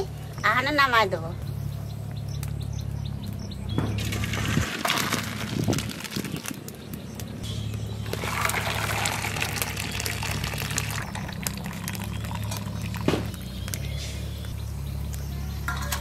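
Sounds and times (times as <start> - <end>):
water poured through colander: 4.0 - 6.5, 8.1 - 13.1.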